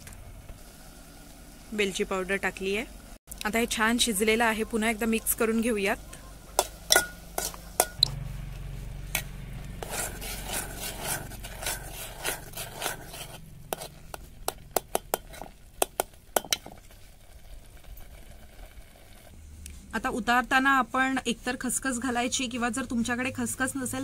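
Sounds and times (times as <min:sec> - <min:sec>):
soft hiss of hot mixture: 0:00.4 - 0:02.7
spoon clinking and scraping pot: 0:06.6 - 0:08.1, 0:09.8 - 0:16.9.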